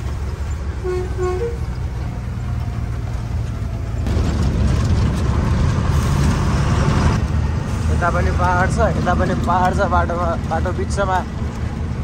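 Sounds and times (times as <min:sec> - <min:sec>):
rushing road noise: 0:00.0 - 0:12.0
truck engine running: 0:00.0 - 0:12.0
short horn toots: 0:00.8 - 0:01.7.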